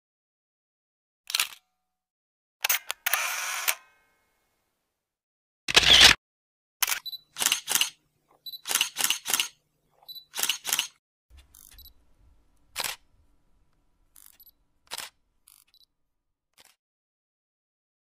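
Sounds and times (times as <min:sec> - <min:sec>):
camera shutter clicks: 0:05.7 - 0:06.2, 0:06.8 - 0:08.0, 0:08.6 - 0:09.6, 0:10.3 - 0:11.0, 0:14.2 - 0:15.7.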